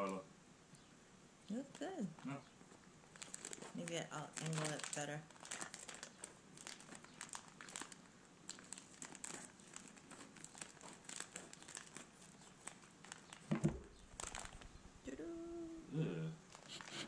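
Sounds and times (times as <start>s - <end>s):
plastic pouch crinkling: 3.1s - 14.9s, 16.5s - 17.0s.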